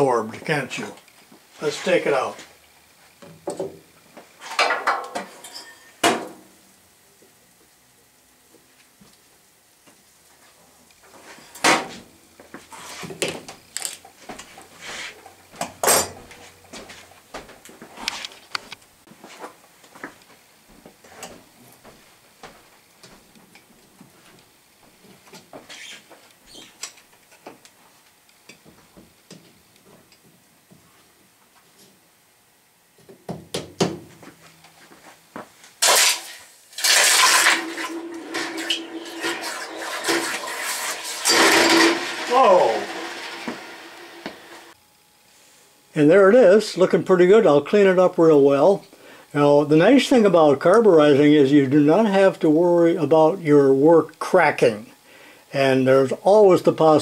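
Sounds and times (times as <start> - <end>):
hot steel hissing in water: 35.8 - 44.8
quenched metal sizzling: 35.8 - 44.8.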